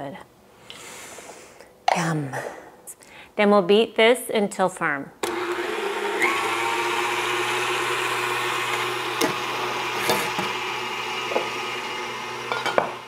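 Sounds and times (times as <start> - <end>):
stand mixer whisking: 5.3 - 13.0.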